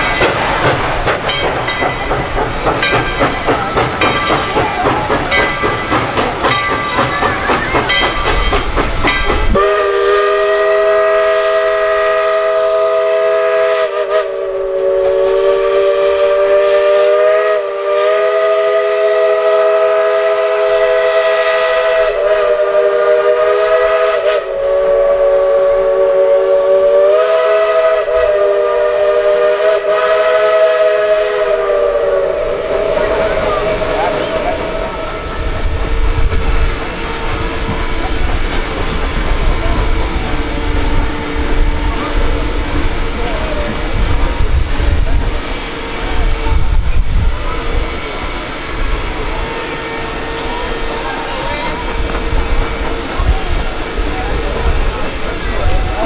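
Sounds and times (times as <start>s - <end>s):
steam locomotive chuffing: 0.0s - 56.0s
steam whistle: 9.4s - 36.4s.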